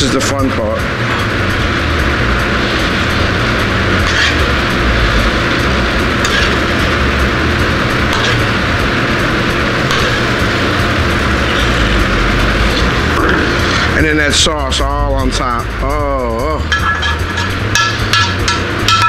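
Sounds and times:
kitchen gas range roar: 0:00.0 - 0:19.0
utensil clinking on plate: 0:16.7 - 0:19.0.

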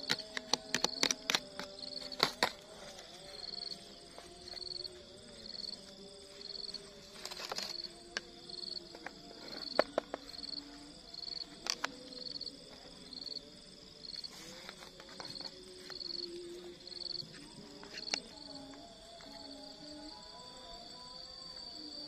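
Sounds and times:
insect chirping: 0:00.0 - 0:22.0.

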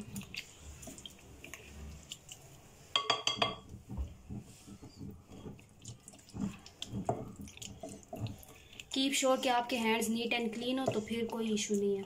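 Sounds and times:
clinks on glass bowl: 0:03.0 - 0:03.6.

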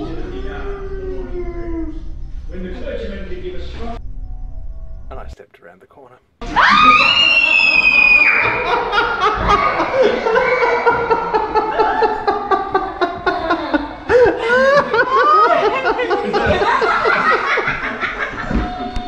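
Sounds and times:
children shrieking and screaming: 0:06.4 - 0:17.5
man laughing hard: 0:08.5 - 0:18.8.

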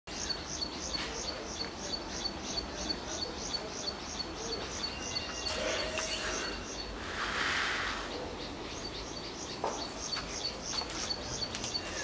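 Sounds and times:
high chirping call: 0:00.1 - 0:12.0
outdoor background noise: 0:00.1 - 0:12.0
hissing rustle: 0:05.5 - 0:08.2.

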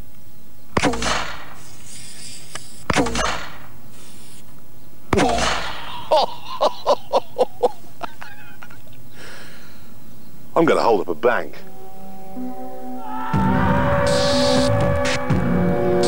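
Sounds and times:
potato cannon firing bang: 0:00.8 - 0:01.6
man laughing: 0:05.2 - 0:09.2.

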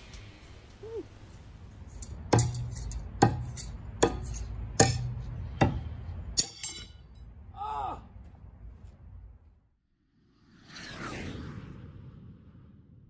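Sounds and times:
knives thunking into wood: 0:02.0 - 0:07.0.

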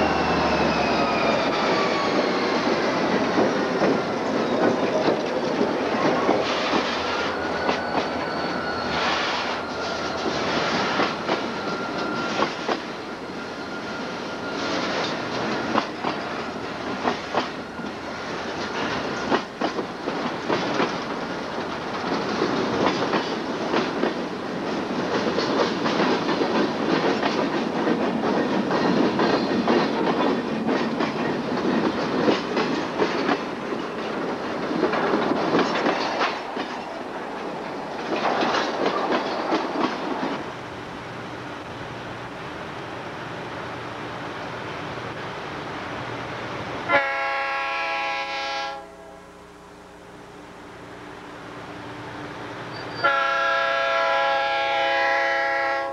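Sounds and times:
freight train rolling past: 0:00.0 - 0:55.9
wheels clicking over rail joints: 0:14.6 - 0:40.5.

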